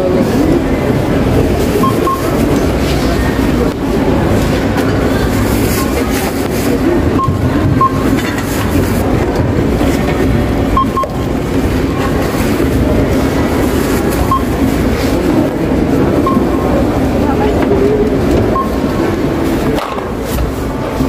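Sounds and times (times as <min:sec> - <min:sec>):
indistinct voices: 0:00.0 - 0:21.0
electronic checkout beeps: 0:01.6 - 0:02.6, 0:07.0 - 0:08.3, 0:10.6 - 0:11.5, 0:14.1 - 0:14.9, 0:16.2 - 0:16.9, 0:18.4 - 0:19.2.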